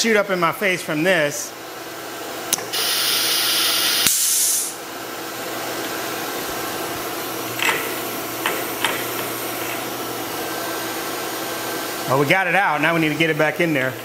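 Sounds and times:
air compressor running: 1.6s - 14.0s
compressed air hissing: 2.7s - 4.8s.

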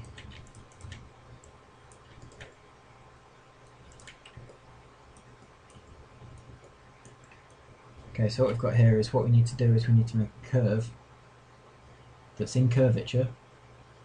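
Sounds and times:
low steady hum: 0.0s - 14.0s
mouse and keyboard clicks: 3.8s - 4.6s.

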